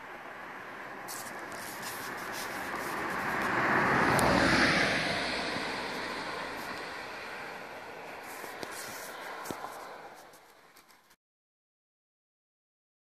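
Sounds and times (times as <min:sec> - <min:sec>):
vehicle passing by: 0:00.0 - 0:10.9.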